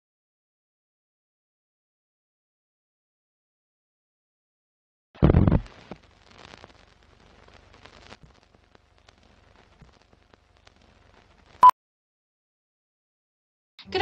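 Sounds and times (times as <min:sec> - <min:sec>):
old film crackle and hiss: 0:05.2 - 0:11.6.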